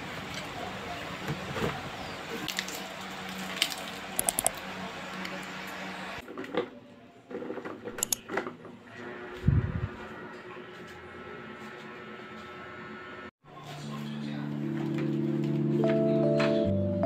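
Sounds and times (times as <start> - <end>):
desk fan humming: 9.0 - 13.3.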